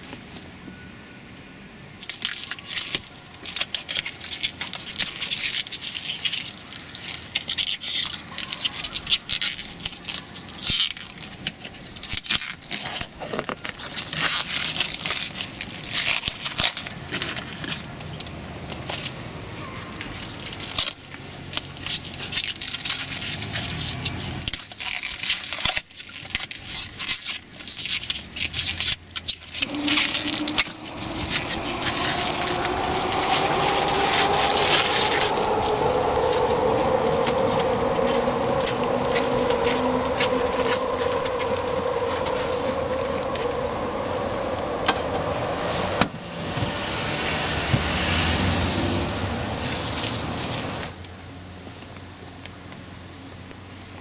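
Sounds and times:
plastic film peeling and tearing: 2.0s - 17.8s, 19.9s - 46.0s, 49.6s - 51.0s
film crinkling in hand: 2.0s - 18.0s, 19.9s - 45.5s.

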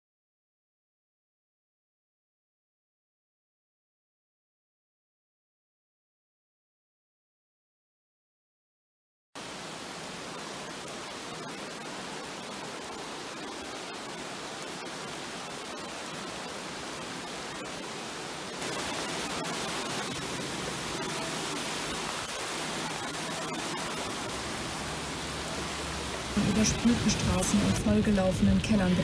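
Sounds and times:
river rushing in flood: 9.4s - 29.0s
water churning under a bridge: 9.4s - 29.0s.

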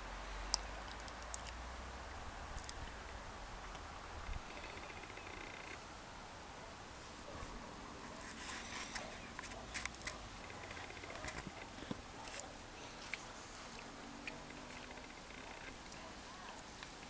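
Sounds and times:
steady background hiss: 0.0s - 17.0s
sharp clicks and crackles: 8.2s - 17.0s.

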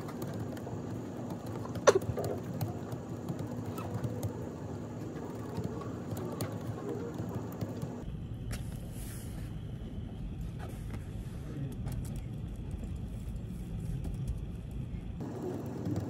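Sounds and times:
laptop keyboard typing: 0.0s - 8.0s, 15.2s - 16.0s
low office hum: 0.0s - 16.0s.

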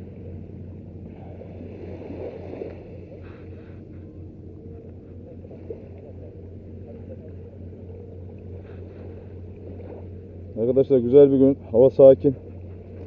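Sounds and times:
small waves lapping on sand: 0.0s - 13.0s
steady low rumble: 0.0s - 13.0s.

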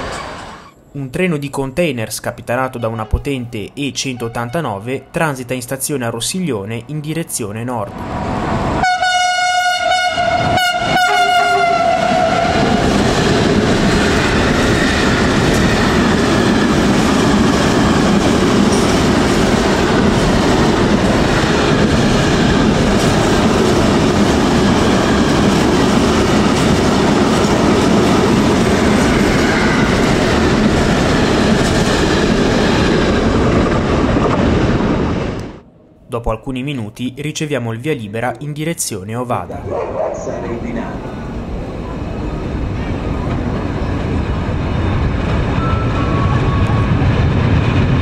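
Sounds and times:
train horn: 8.8s - 12.8s.

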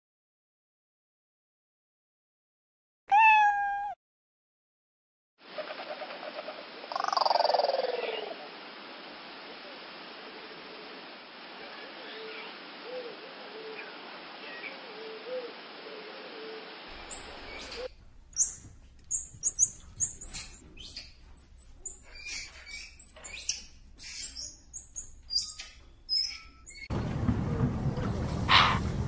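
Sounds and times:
steady hiss: 5.5s - 25.3s
squirrel monkey chirps: 17.0s - 26.9s.

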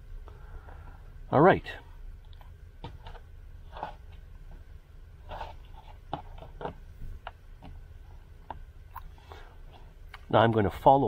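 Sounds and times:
low steady hum: 0.0s - 11.0s
cord rustling and scraping: 2.2s - 10.0s.

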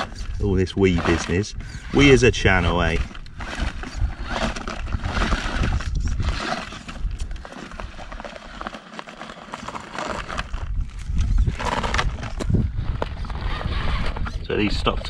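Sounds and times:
rc car knocking and scraping on rock: 0.0s - 15.0s.

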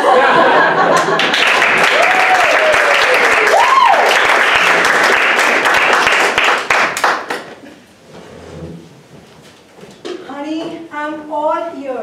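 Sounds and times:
audience applauding: 0.7s - 7.6s.

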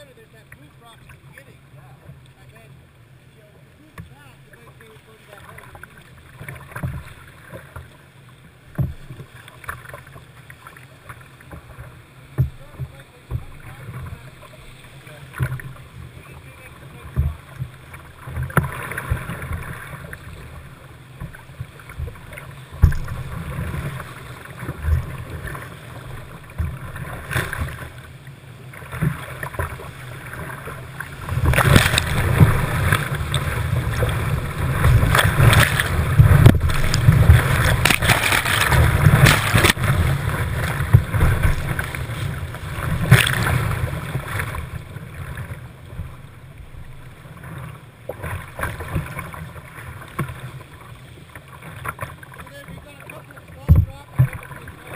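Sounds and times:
sharp splashes and knocks: 5.5s - 7.9s, 8.7s - 14.2s, 15.3s - 15.9s, 17.1s - 20.6s, 21.2s - 28.0s, 28.7s - 46.2s, 46.8s - 50.7s, 53.6s - 54.6s
whitewater river rushing: 28.9s - 45.6s.

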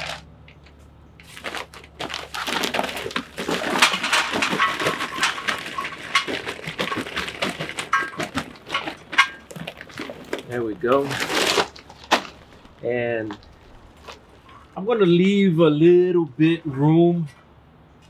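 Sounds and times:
charcoal clattering into metal basket: 1.2s - 14.6s.

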